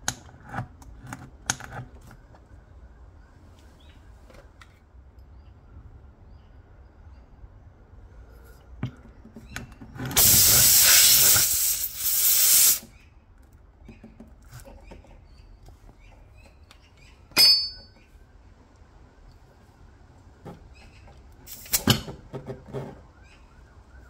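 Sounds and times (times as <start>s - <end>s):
air hissing from a tire: 10.2s - 12.9s, 21.5s - 22.0s.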